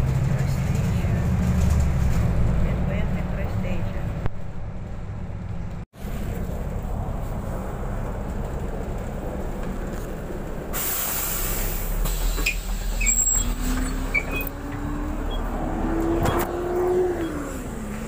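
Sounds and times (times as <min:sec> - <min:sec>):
bus engine rumbling: 0:00.0 - 0:18.0
compressed air hiss: 0:10.7 - 0:12.7.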